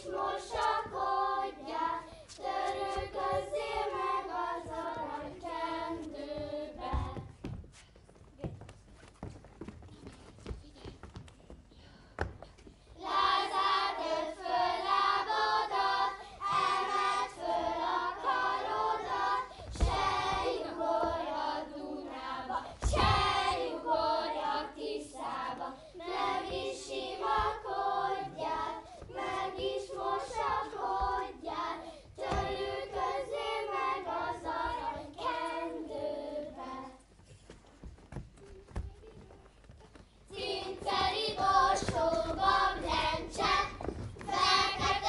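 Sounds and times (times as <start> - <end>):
children singing: 0.0 - 7.3, 13.0 - 37.0, 40.3 - 45.0.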